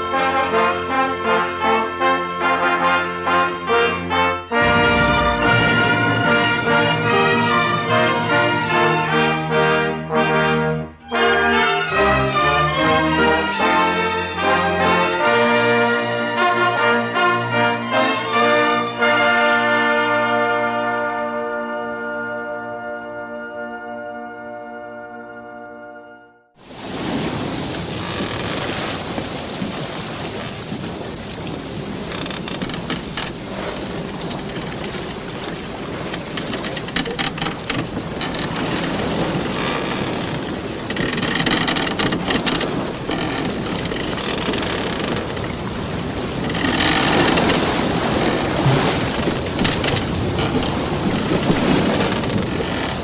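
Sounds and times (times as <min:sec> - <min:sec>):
rushing wind and sea noise: 0:00.0 - 0:10.6, 0:26.6 - 0:53.0
scattered crackles: 0:28.0 - 0:28.9, 0:32.1 - 0:53.0.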